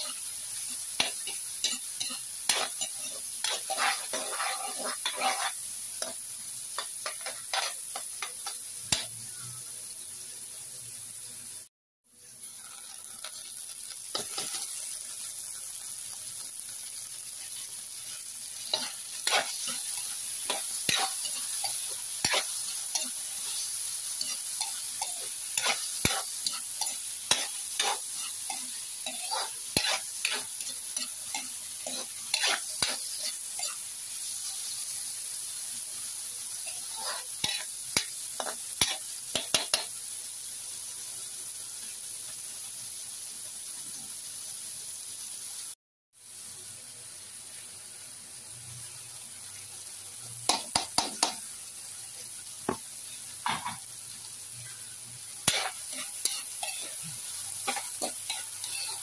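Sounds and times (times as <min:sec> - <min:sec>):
spatula scraping a pan: 0:00.0 - 0:06.2, 0:06.8 - 0:08.5, 0:18.5 - 0:33.8, 0:36.6 - 0:39.9, 0:55.4 - 0:59.0
vegetables sizzling in oil: 0:00.0 - 0:59.0.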